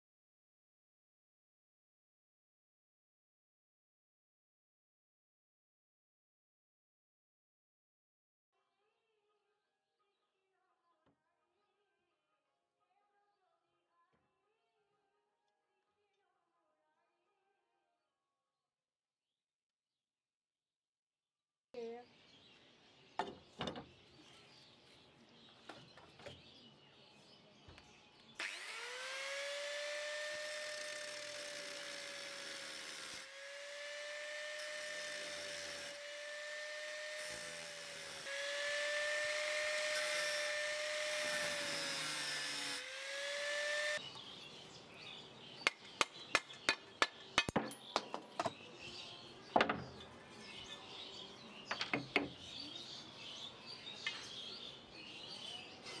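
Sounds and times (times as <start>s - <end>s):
angle grinder grinding metal: 28.4s - 44.0s
sharp knocks and taps: 45.6s - 48.6s.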